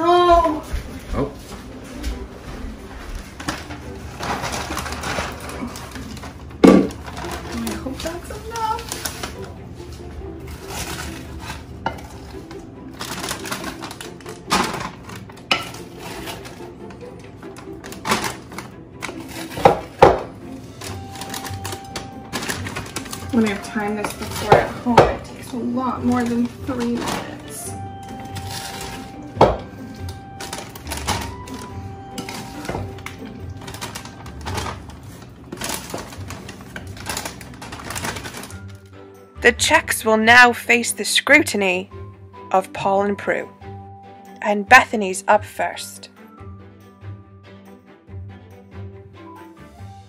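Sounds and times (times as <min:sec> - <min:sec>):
background music: 0:00.0 - 0:50.0.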